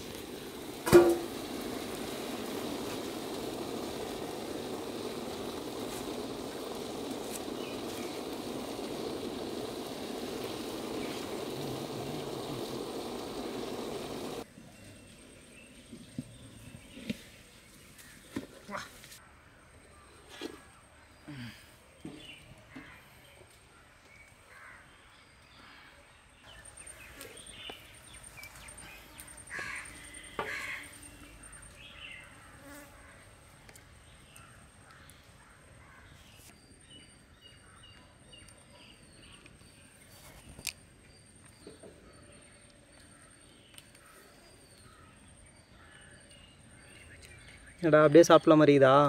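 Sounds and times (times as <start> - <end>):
insects buzzing: 0.0 - 14.5, 26.4 - 35.3
birds calling: 0.0 - 18.5, 26.4 - 33.2
crow-like caws: 29.5 - 30.9.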